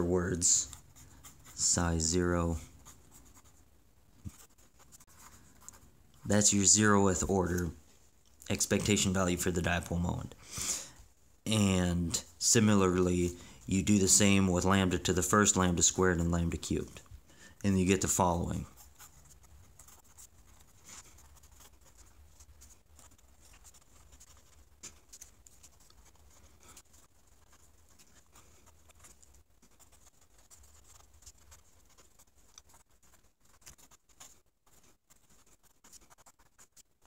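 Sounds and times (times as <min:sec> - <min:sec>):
pen scratching on paper: 0:00.0 - 0:07.7, 0:17.8 - 0:37.0.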